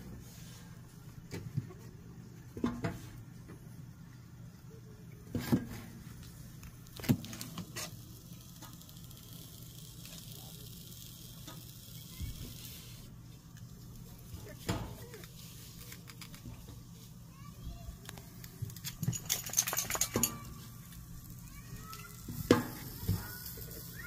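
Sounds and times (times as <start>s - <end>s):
food sizzling on griddle: 7.5s - 13.1s, 20.3s - 24.0s.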